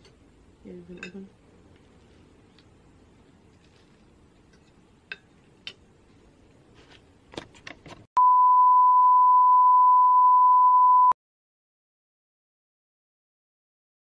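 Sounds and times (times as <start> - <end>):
steady electronic beep tone: 8.2 - 11.2.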